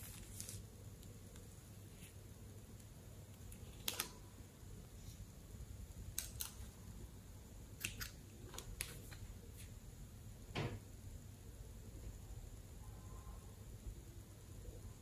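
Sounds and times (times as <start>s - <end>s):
plastic piping bag crinkling: 0.0s - 1.5s.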